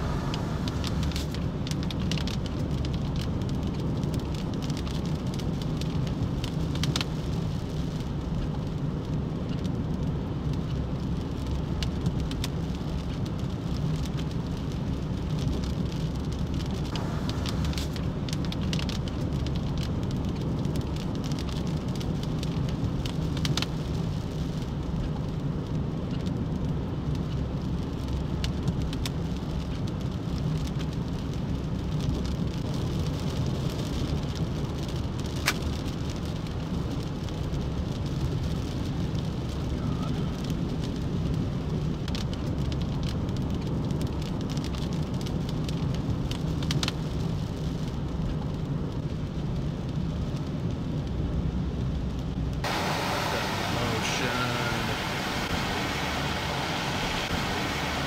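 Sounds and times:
rain falling: 0.0s - 58.0s
sharp raindrop hits: 11.5s - 25.8s, 52.4s - 58.0s
steady low background noise: 52.5s - 58.0s.

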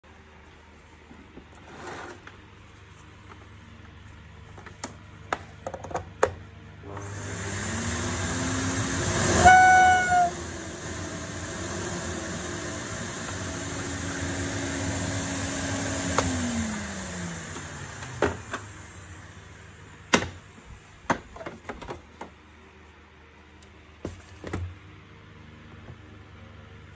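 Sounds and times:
vacuum cleaner motor: 6.8s - 20.2s
high whistle: 9.2s - 10.4s.

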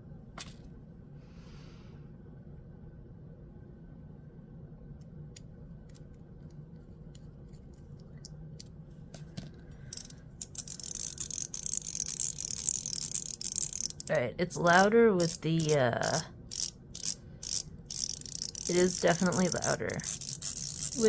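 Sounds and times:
fidget coin clicking and rattling: 9.8s - 21.0s.

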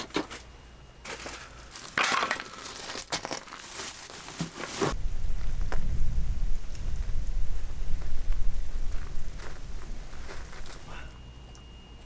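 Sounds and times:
crunching and rustling: 0.0s - 5.8s, 7.9s - 11.0s
wind buffeting microphone: 5.0s - 10.8s.

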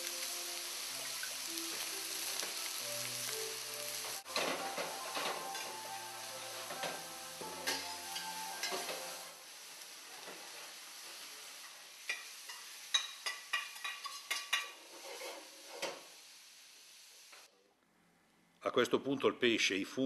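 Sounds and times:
food sizzling in frying pan: 0.0s - 17.5s
metal utensil scraping pan: 6.7s - 9.2s, 12.1s - 16.0s.

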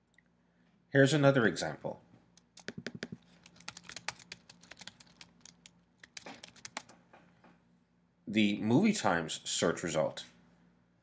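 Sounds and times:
typing on computer keyboard: 2.4s - 7.0s.

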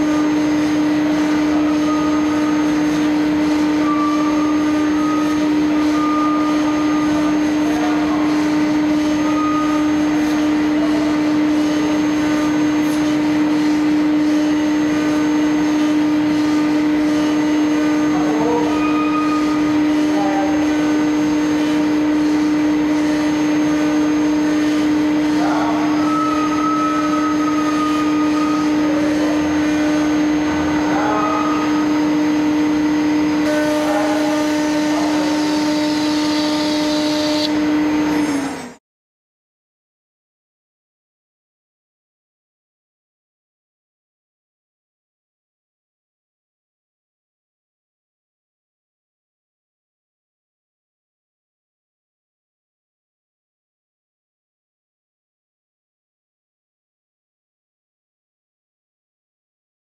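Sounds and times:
router bit cutting board: 0.0s - 38.8s
router spindle humming: 0.0s - 38.8s.

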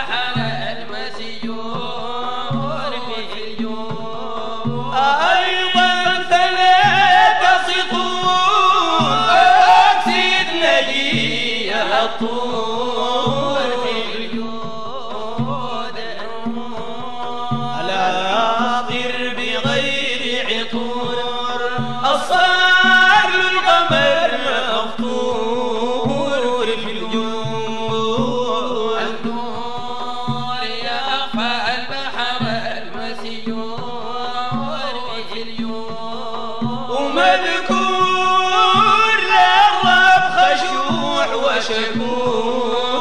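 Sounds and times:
men chanting in unison: 0.0s - 43.0s
steady beat: 0.4s - 15.8s, 32.4s - 43.0s.

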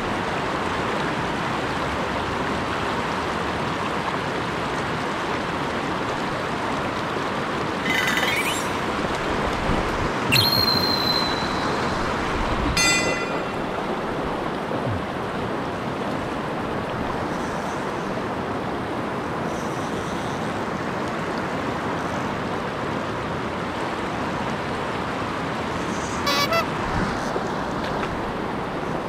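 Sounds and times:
river water rushing: 0.0s - 29.0s
high-pitched tones: 7.8s - 8.9s, 10.3s - 12.2s, 12.8s - 14.0s, 26.3s - 26.7s.

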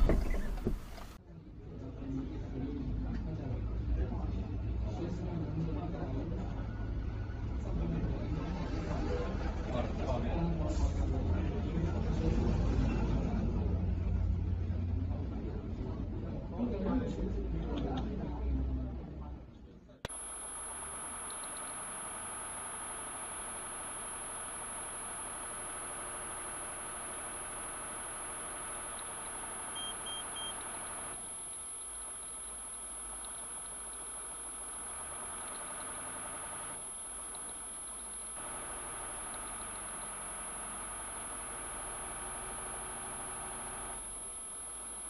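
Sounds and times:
high-pitched whine: 20.1s - 45.0s
short high beeps: 20.1s - 45.0s.

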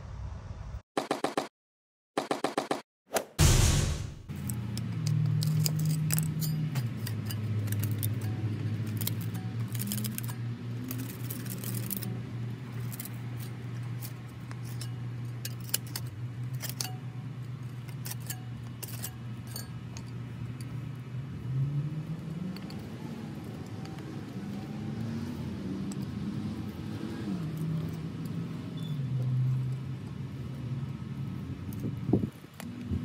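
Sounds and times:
screwdrivers scraping on concrete: 4.3s - 21.0s, 22.2s - 32.9s
low engine hum: 19.7s - 33.0s.

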